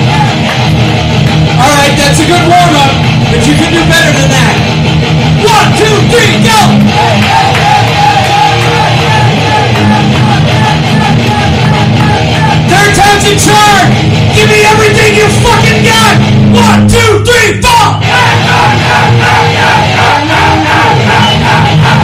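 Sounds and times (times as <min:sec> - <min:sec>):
distorted electric guitar: 0:00.0 - 0:22.0
live heavy metal music: 0:00.0 - 0:22.0
person yelling vocals: 0:05.4 - 0:22.0.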